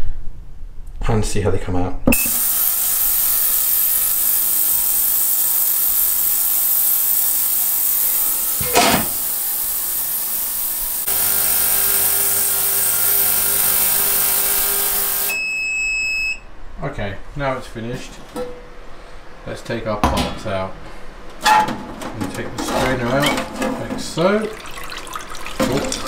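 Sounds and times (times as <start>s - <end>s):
ultrasonic cleaner hissing: 2.2s - 15.4s.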